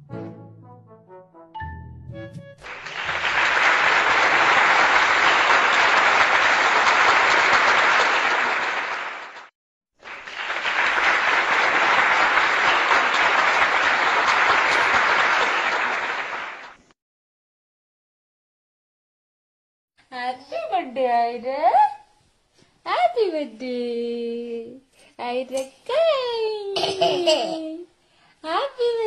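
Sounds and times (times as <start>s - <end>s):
crowd applauding: 2.6s - 16.9s.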